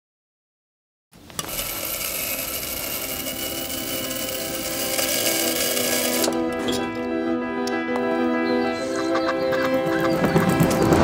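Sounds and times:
coffee grinder whirring: 1.4 - 6.4.

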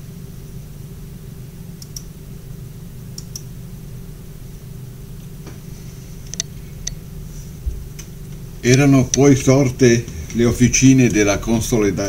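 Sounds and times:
steady low hum: 0.0 - 12.0
computer sharp clicks: 1.8 - 2.1, 3.2 - 3.5.

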